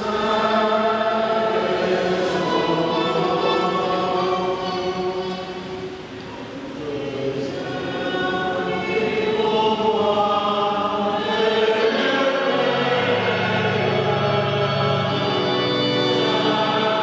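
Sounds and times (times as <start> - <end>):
choir singing a hymn: 0.0 - 17.0.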